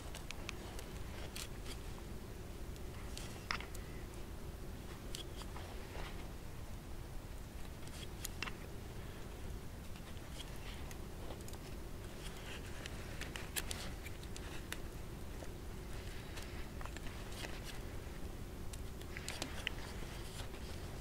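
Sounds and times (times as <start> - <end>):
knife shaving wood: 9.9 - 21.0.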